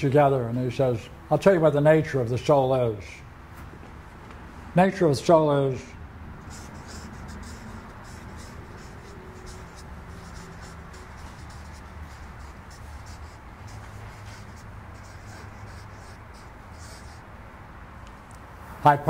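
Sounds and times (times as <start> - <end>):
steady low hum: 5.6 - 18.9
marker scratching on paper: 6.4 - 17.3.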